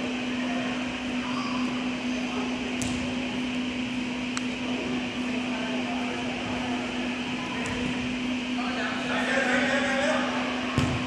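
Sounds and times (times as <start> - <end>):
arena room noise hum: 0.0 - 11.0.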